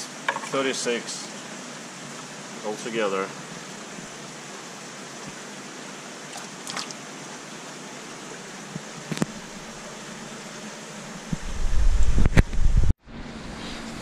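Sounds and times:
background hiss: 0.0s - 12.9s
loud low bumps and rumbling: 11.3s - 12.9s.

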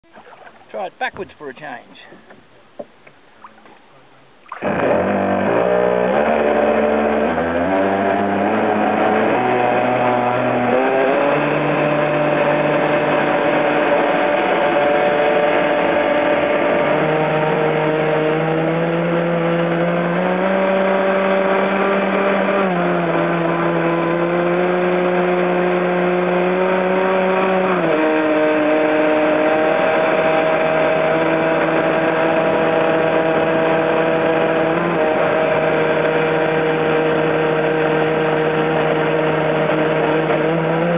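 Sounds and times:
water rushing from hull: 0.0s - 24.4s
electric motor whining: 4.6s - 10.8s.

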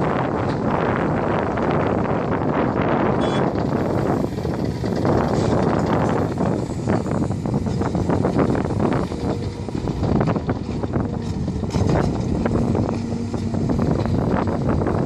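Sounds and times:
excavator working: 0.0s - 15.0s
wind buffeting microphone: 0.0s - 15.0s
dump truck idling: 3.3s - 15.0s.

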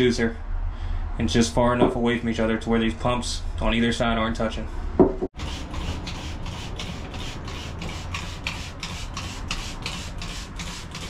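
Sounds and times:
gloved hand scrubbing fiberglass: 5.4s - 11.0s.

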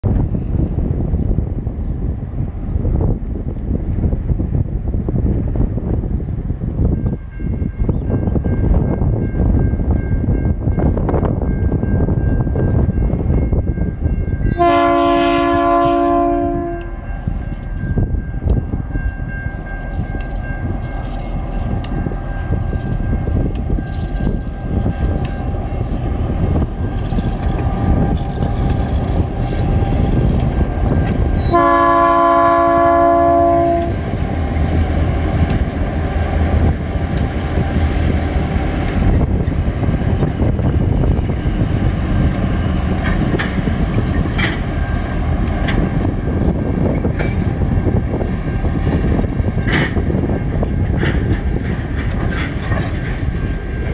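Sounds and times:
train wheel noise: 0.0s - 53.9s
locomotive chord horn: 14.5s - 17.1s, 31.4s - 34.1s.

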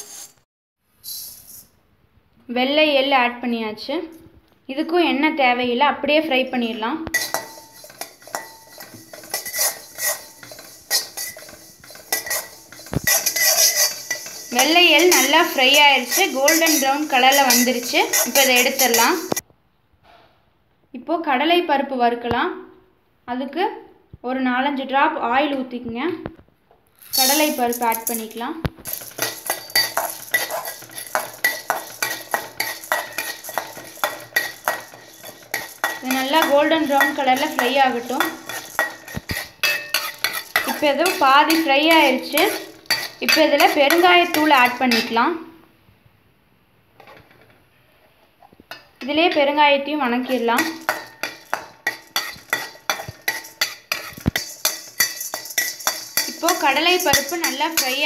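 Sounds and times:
utensil scraping metal pan: 7.1s - 19.4s, 27.0s - 45.2s, 48.7s - 58.0s.

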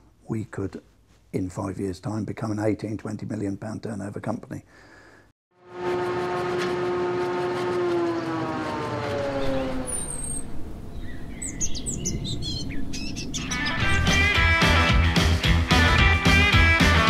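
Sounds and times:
falling tone with overtones: 5.6s - 11.3s
high bird-like chirps: 9.5s - 14.2s.

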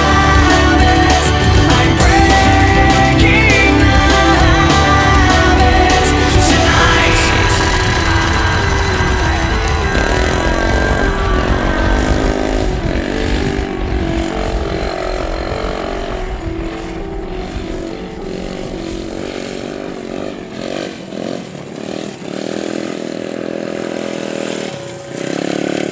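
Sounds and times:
distant dirt bike engine: 0.0s - 25.9s
wind rumbling on microphone: 5.6s - 22.1s.

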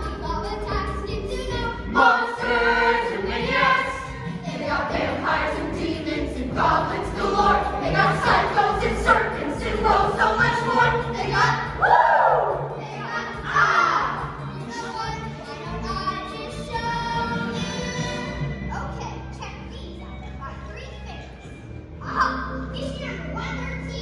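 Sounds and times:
instrumental accompaniment: 0.0s - 23.4s
choir singing: 1.9s - 12.8s.

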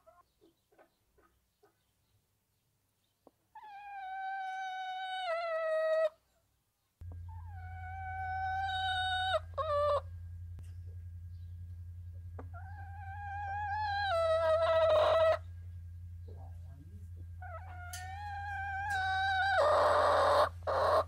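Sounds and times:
steady low hum: 7.0s - 21.0s
rooster crowing: 7.4s - 10.0s, 17.6s - 21.0s.

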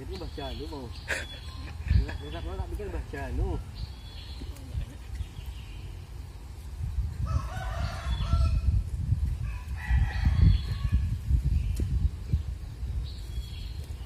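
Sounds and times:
rooster crowing: 7.2s - 8.7s, 9.5s - 11.1s.

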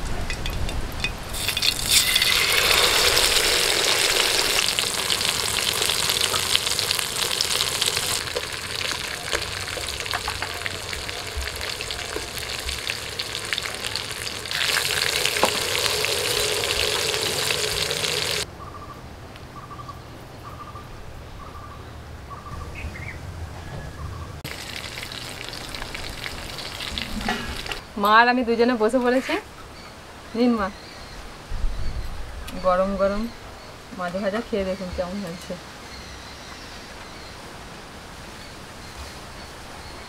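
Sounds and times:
oil bubbling: 0.0s - 18.5s, 24.4s - 27.9s
fish sizzling in hot oil: 1.3s - 18.4s, 24.5s - 27.8s.

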